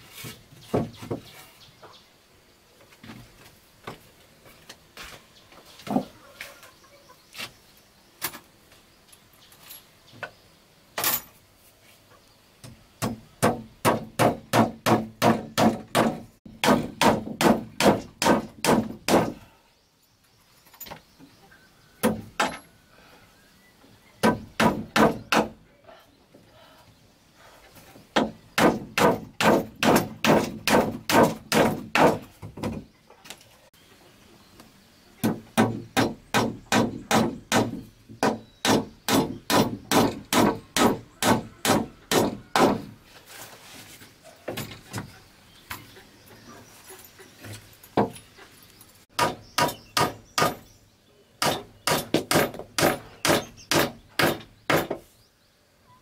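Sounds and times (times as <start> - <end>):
hammer blows on wooden slats: 12.7 - 19.5, 28.1 - 32.8, 35.2 - 43.0.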